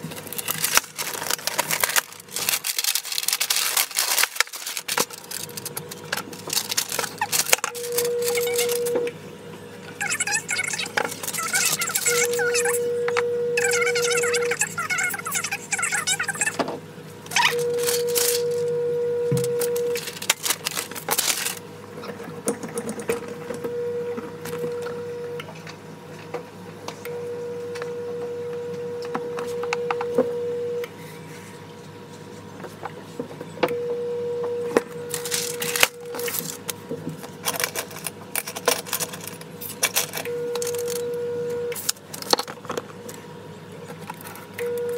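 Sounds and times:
steady hum: 0.0 - 44.9
paper rustling and sliding: 0.1 - 7.5, 20.0 - 21.6.

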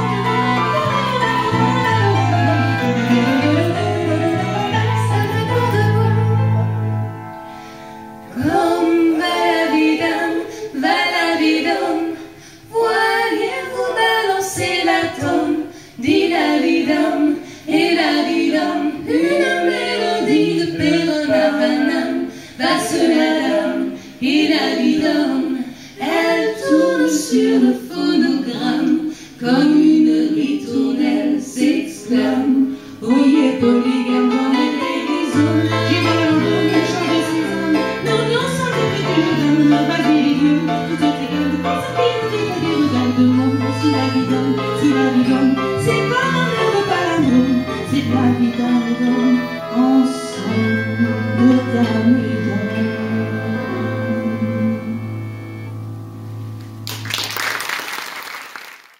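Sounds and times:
bass guitar: 0.0 - 7.2.

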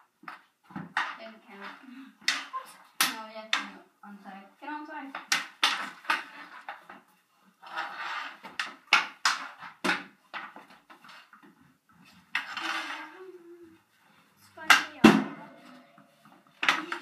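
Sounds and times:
hockey sticks clacking on ball: 0.0 - 3.9, 5.1 - 13.3, 14.4 - 17.0
ball bouncing: 14.6 - 17.0.

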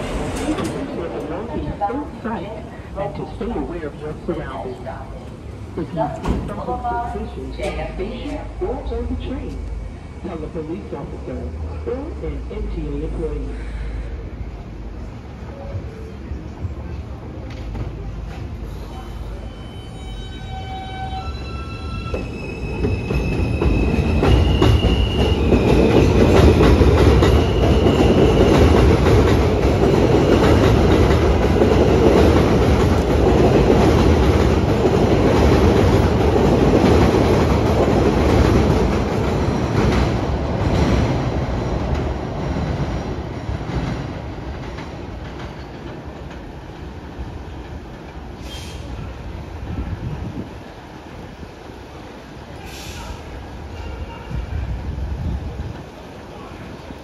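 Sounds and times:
train wheels rumbling and clacking: 0.0 - 12.8, 21.0 - 57.0
subway train electric whine: 0.0 - 57.0.

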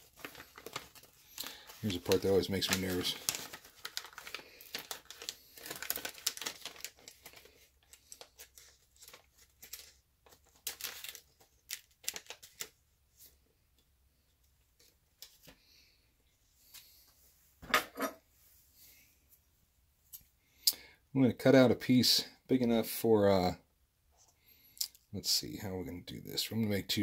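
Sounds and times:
plastic pouch crinkling: 0.0 - 12.8.

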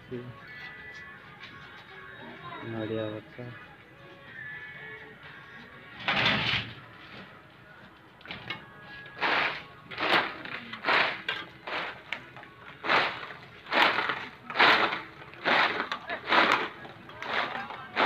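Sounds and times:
faint background music: 0.0 - 18.0
trowel scraping mortar: 9.2 - 12.0, 12.8 - 18.0.

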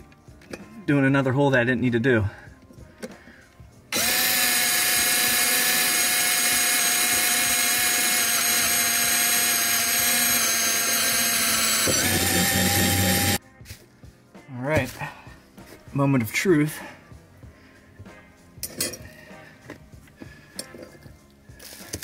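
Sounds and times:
cordless drill boring a hole: 3.9 - 13.4.

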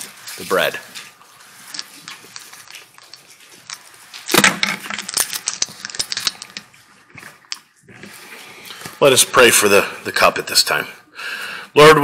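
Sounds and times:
small objects clicking and crackling: 0.0 - 7.8.

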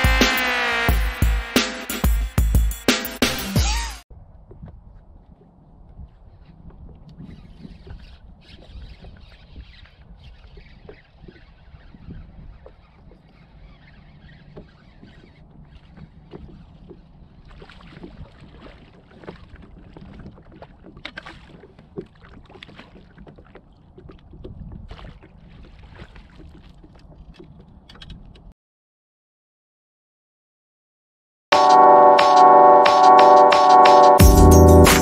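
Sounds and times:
water splashing against kayak: 3.6 - 28.5
wind rumble on microphone: 4.1 - 28.5.

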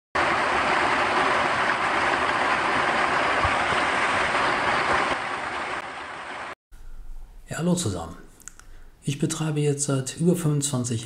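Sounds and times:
rain water pouring off roof: 0.2 - 6.6.

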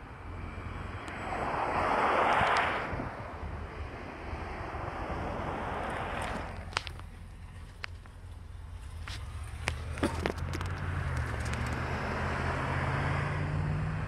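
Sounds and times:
vehicle driving past: 8.8 - 14.0.

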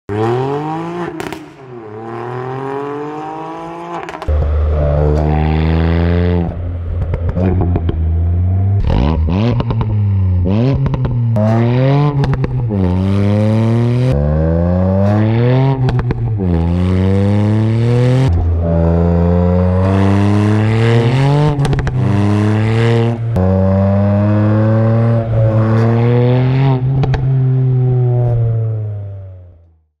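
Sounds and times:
car engine accelerating: 0.1 - 29.9
exhaust pops: 4.1 - 11.6, 21.5 - 22.2.

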